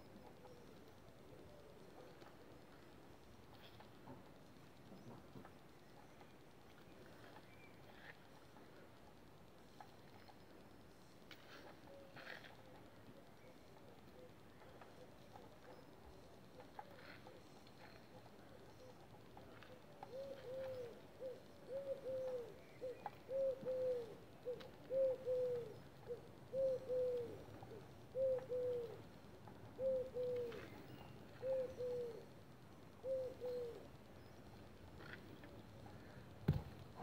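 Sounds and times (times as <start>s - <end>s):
dove cooing: 11.9s - 12.7s, 16.6s - 29.1s, 29.7s - 32.3s, 32.9s - 34.4s
sharp thump: 36.5s - 36.7s.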